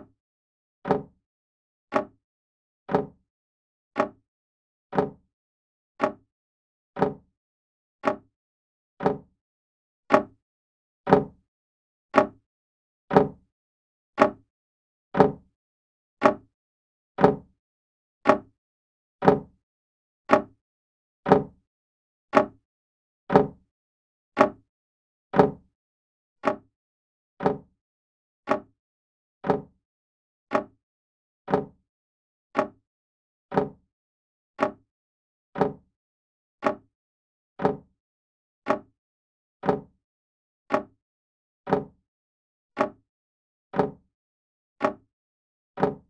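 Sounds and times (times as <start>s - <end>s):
clock ticking: 7.0s - 7.2s, 27.4s - 27.6s, 29.4s - 29.7s, 31.5s - 31.7s, 35.6s - 35.8s, 37.6s - 37.8s, 41.7s - 41.9s, 43.7s - 44.0s.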